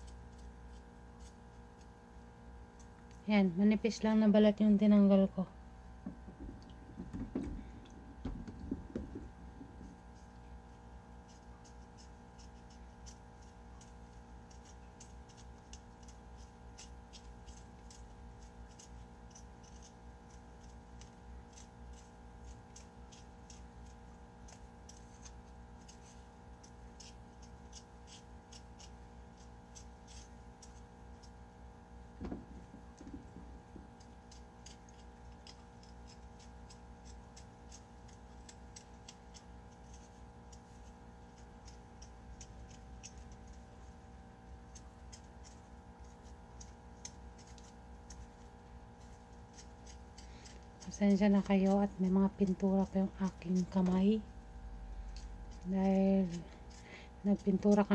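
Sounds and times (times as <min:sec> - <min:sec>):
knife scraping potato skin: 0:00.0 - 0:03.0, 0:09.8 - 0:31.6, 0:32.6 - 0:57.9
low hum: 0:00.0 - 0:11.1
steady low hum: 0:00.0 - 0:57.9.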